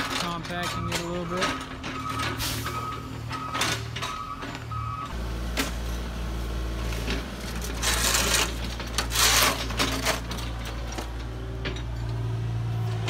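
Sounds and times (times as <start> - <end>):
crunching wood and metal: 0.0 - 13.0
diesel engine running: 0.0 - 13.0.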